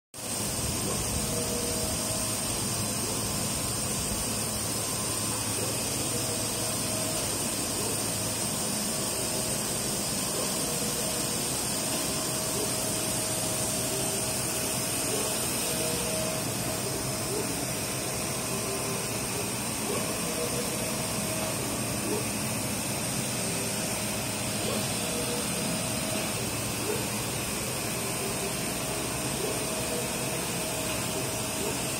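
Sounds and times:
high whine: 0.2s - 31.9s
printer fan and suction noise: 0.2s - 31.9s
carriage motor tone: 0.6s - 31.9s.

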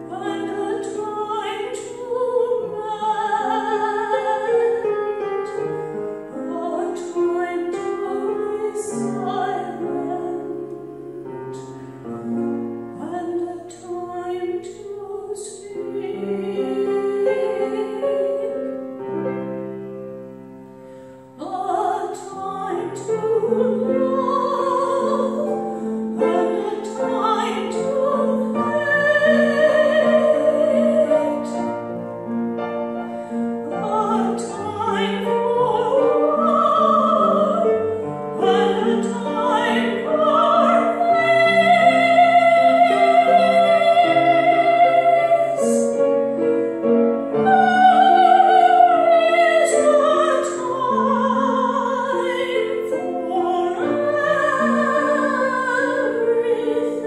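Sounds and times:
classical singing with vibrato: 0.0s - 57.0s
piano accompaniment: 0.0s - 57.0s.

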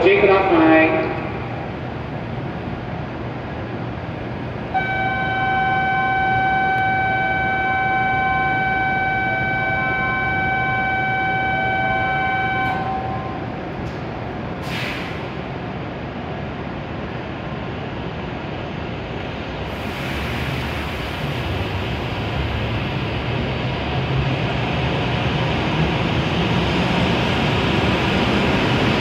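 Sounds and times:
electronic warning tone: 4.7s - 13.5s
short hiss: 14.6s - 15.4s.

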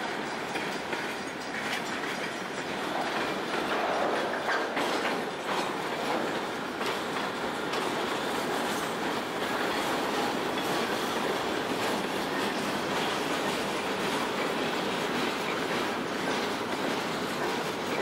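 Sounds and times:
steel wheels rolling on rails: 0.0s - 18.0s.

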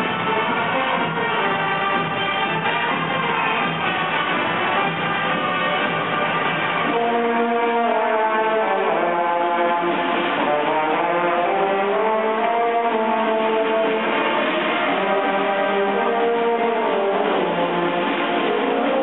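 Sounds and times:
marching brass band playing: 0.0s - 19.0s.

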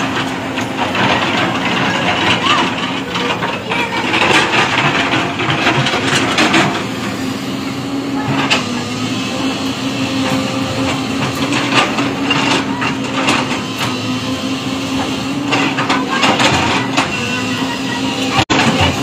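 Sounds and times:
excavator engine droning: 0.0s - 19.0s.

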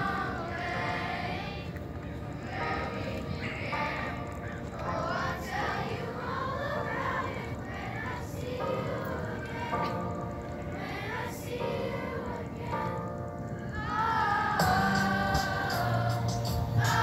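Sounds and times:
children singing together: 0.0s - 17.0s
recorded music: 8.4s - 17.0s.

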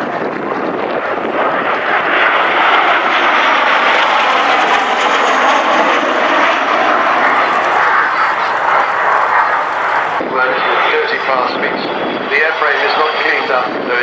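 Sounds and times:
jet aircraft flying past: 0.0s - 14.0s.

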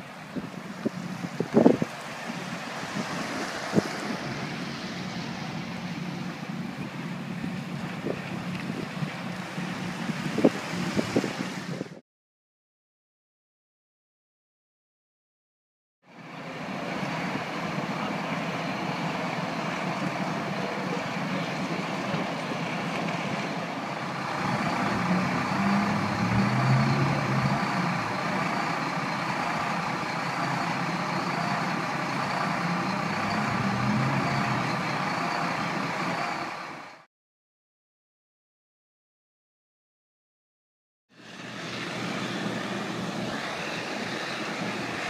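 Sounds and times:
fire engine droning: 0.0s - 10.7s, 16.0s - 37.1s, 41.1s - 45.0s.

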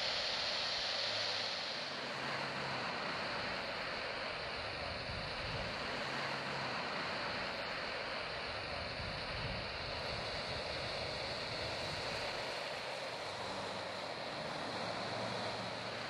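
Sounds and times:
distant jet engines rushing: 0.0s - 16.0s.

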